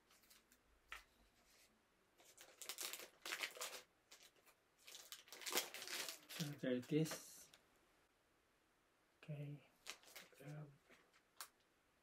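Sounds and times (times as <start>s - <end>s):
packaging crinkling: 2.2s - 6.6s, 9.8s - 11.6s.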